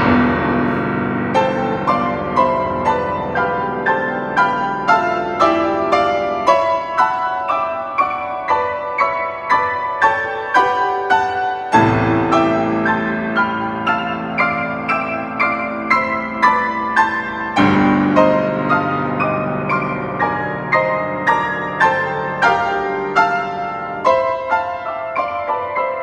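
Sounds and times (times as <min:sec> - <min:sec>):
deep bass piano chord: 0:00.0 - 0:06.5
grand piano playing: 0:00.0 - 0:26.0.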